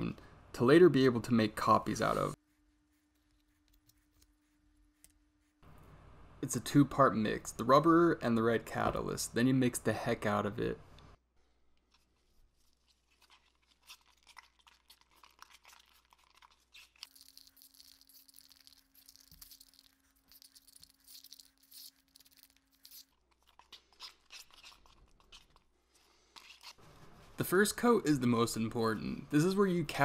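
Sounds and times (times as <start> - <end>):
stir stick scraping plastic cup: 11.9 - 25.7, 26.3 - 27.5.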